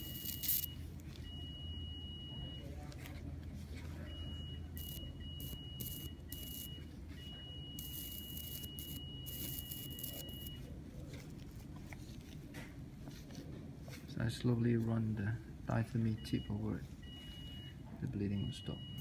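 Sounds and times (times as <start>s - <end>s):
electrosurgical unit high tone: 0.0s - 1.8s, 4.6s - 10.7s.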